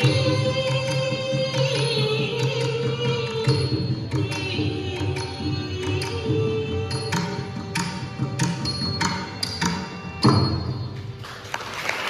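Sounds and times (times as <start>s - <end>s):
low percussion accompaniment: 0.0s - 11.8s
sharp percussion strikes: 2.8s - 11.2s.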